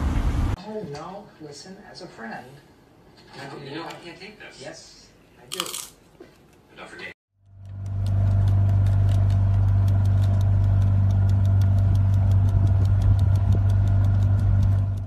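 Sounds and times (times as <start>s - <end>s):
motorboat engine running: 7.4s - 15.0s.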